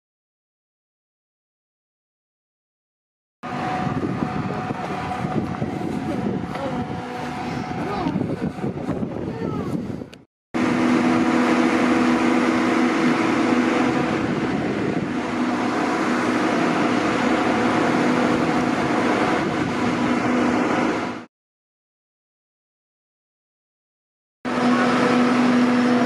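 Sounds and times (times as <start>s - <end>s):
locomotive diesel engine idling: 3.5s - 8.8s, 24.5s - 26.0s.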